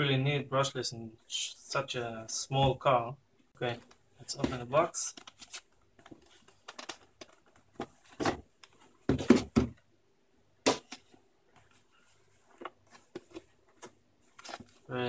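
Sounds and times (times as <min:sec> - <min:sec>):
boxes knocking on wooden table: 0:09.1 - 0:09.8.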